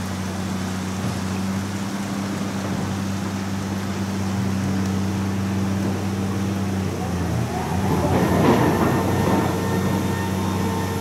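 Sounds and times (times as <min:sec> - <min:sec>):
floodwater rushing: 0:00.0 - 0:11.0
low mechanical hum: 0:00.0 - 0:11.0.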